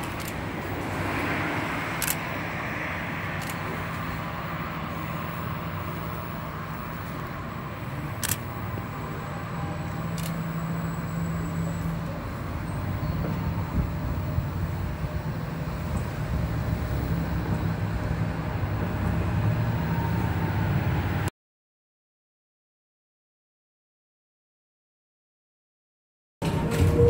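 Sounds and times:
tram rumbling past on track: 0.0 - 21.3, 26.4 - 27.0.

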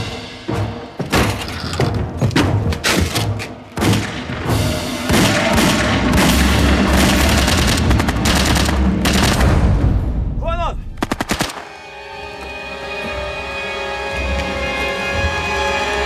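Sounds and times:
music: 0.0 - 16.0
automatic gunfire: 5.1 - 9.6, 11.0 - 11.6.

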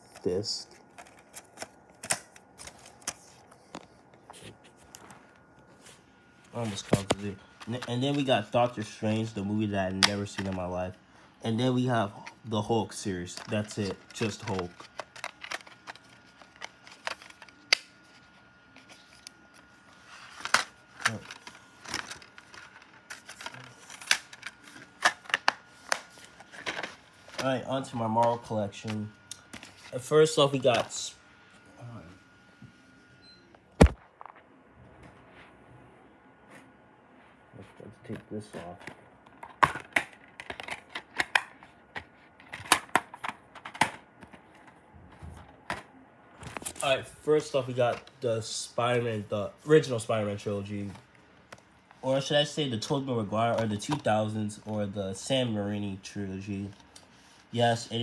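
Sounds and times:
plastic cases clicking and clacking: 38.6 - 44.8.

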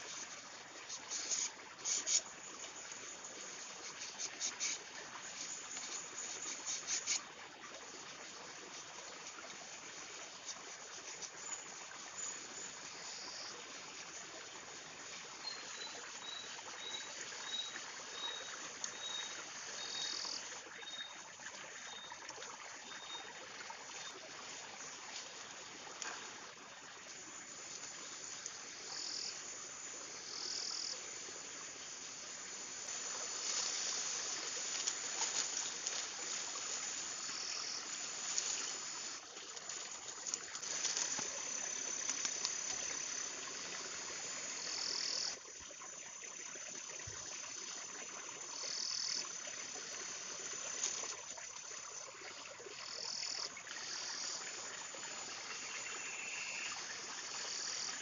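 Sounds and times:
flowing water hiss: 0.0 - 58.0
insects calling in high bursts: 0.0 - 58.0
dry plant strips rustling: 32.9 - 37.1, 39.5 - 42.5.

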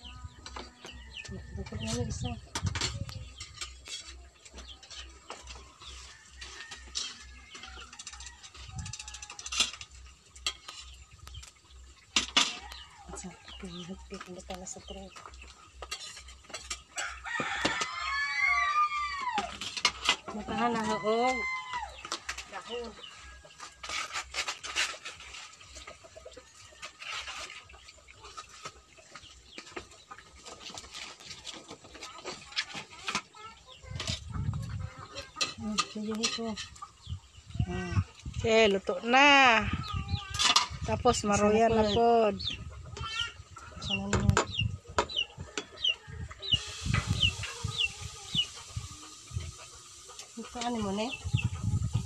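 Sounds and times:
chick peeping: 0.0 - 6.6, 10.7 - 17.1, 27.4 - 52.0
hens clucking: 0.0 - 52.0
oil crackling and sizzling: 3.3 - 33.9, 45.5 - 52.0.

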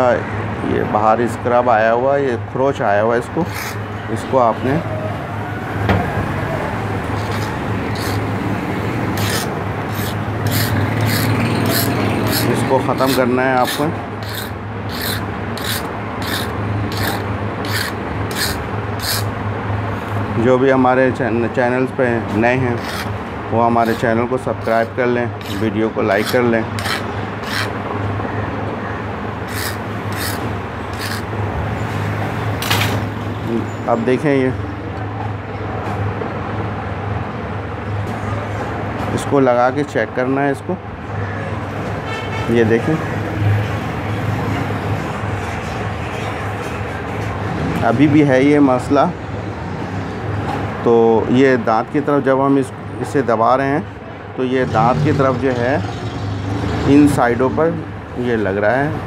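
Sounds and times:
hand file rasping on steel: 3.4 - 3.8, 7.2 - 8.4, 9.1 - 19.3, 22.7 - 27.8, 29.5 - 31.3.

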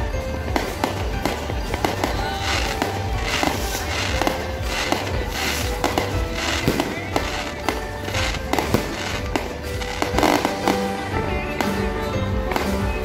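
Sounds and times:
fireworks bursting: 0.0 - 11.9
music playing: 0.0 - 13.0.

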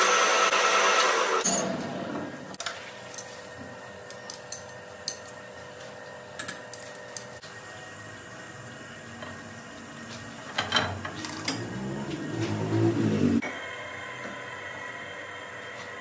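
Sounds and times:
machine humming: 11.2 - 16.0.

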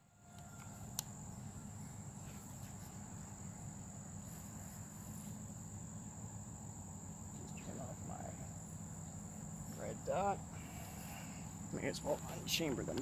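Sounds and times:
insects trilling: 0.0 - 13.0
low background hum: 0.0 - 13.0.

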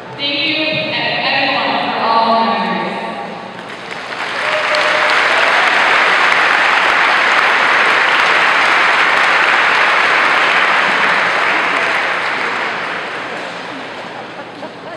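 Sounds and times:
audience applauding: 3.6 - 14.8.

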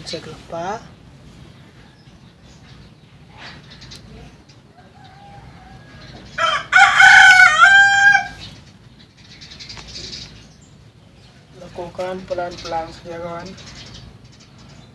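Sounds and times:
rooster crowing: 4.7 - 8.4.

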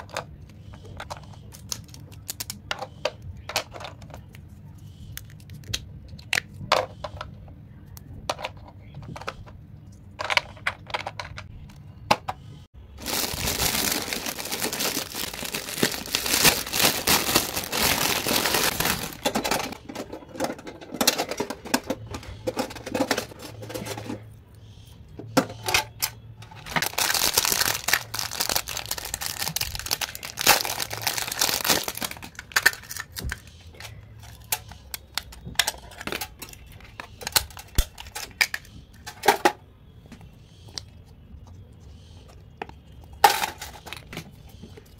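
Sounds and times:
plastic crinkling and rustling: 13.0 - 21.5, 26.4 - 38.8.

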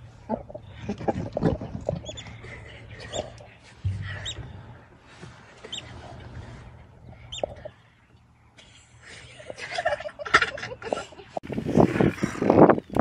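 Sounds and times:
high-pitched chirping calls: 4.2 - 4.4, 5.7 - 5.9, 7.2 - 7.7.

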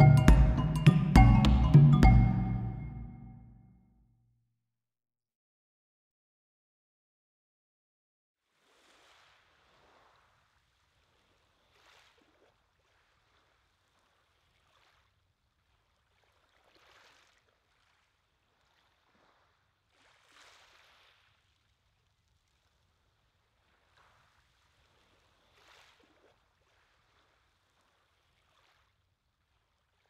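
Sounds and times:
small waves on shingle beach: 8.5 - 21.7, 23.7 - 29.0.

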